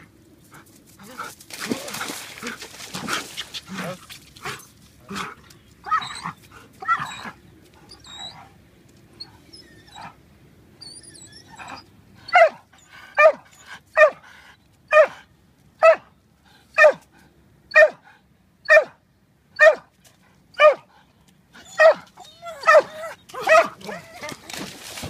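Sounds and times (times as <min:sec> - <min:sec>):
dog barking: 0:12.3 - 0:12.6, 0:13.2 - 0:13.4, 0:14.0 - 0:14.2, 0:14.9 - 0:15.2, 0:15.8 - 0:16.1, 0:16.8 - 0:17.0, 0:17.7 - 0:18.0, 0:18.7 - 0:19.0, 0:19.6 - 0:19.9, 0:20.6 - 0:20.8, 0:21.8 - 0:22.0, 0:22.6 - 0:24.1.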